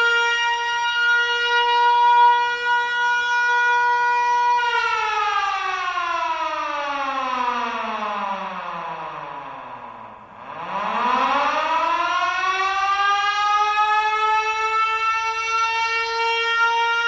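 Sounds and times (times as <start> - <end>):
mechanical siren winding down: 6.3 - 17.0.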